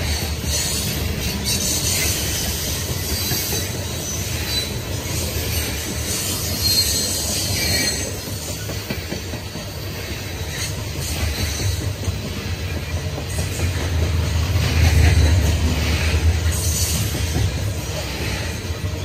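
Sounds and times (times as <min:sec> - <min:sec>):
high wheel squeal: 0:00.0 - 0:08.8
steel wheels rumbling on rail: 0:00.0 - 0:19.0.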